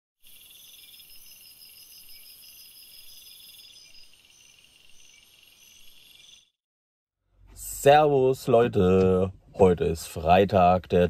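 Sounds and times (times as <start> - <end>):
crickets chirping: 0.2 - 6.5.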